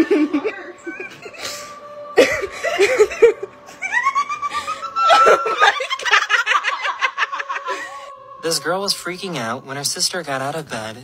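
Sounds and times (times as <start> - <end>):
person laughing: 0.0 - 8.1.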